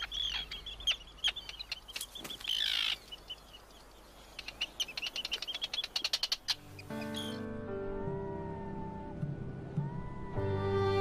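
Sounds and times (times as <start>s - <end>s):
fast chattering bird calls: 0.0s - 3.7s, 4.3s - 7.4s
terns calling: 0.0s - 7.5s.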